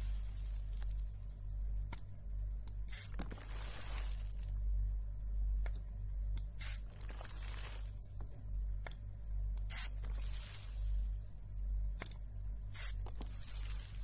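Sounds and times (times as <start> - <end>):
spray bottle squirts: 9.7 - 10.6, 12.8 - 14.0.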